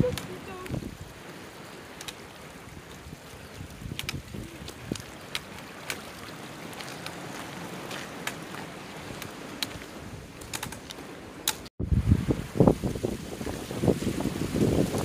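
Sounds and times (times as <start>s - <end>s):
brook flowing over stones: 0.0s - 11.3s
water splashes: 0.0s - 15.0s.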